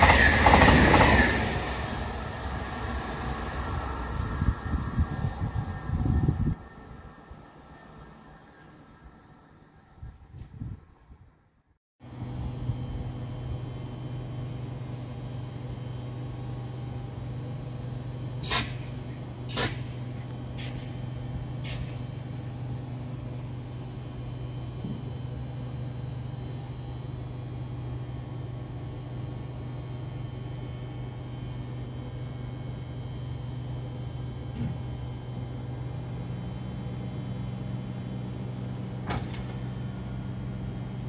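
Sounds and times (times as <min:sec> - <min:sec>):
electric train humming: 0:00.0 - 0:10.0, 0:35.2 - 0:41.0.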